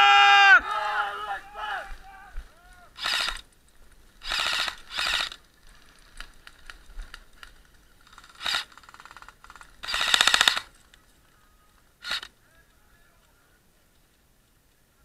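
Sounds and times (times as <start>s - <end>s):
sharp clicks: 3.0s - 11.0s, 12.0s - 12.3s
airsoft guns firing bursts: 4.2s - 5.4s, 8.0s - 10.7s.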